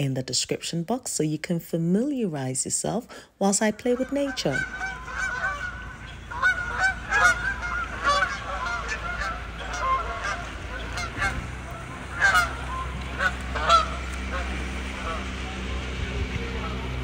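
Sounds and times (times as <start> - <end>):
low steady hum: 0.0 - 17.0
geese honking: 3.7 - 17.0.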